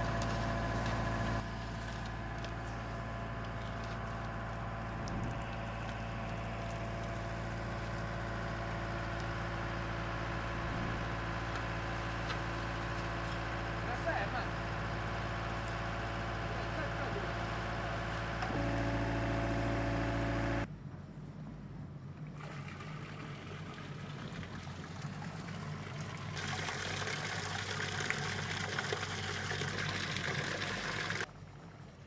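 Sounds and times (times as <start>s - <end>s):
engine running: 0.0s - 20.8s
water pouring and splashing: 22.4s - 31.8s.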